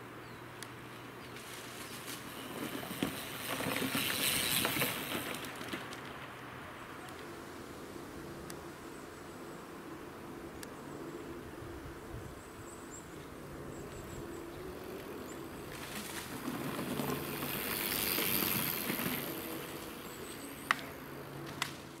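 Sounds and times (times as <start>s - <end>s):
bike tyres rushing over dirt: 1.3s - 7.0s, 13.8s - 22.0s.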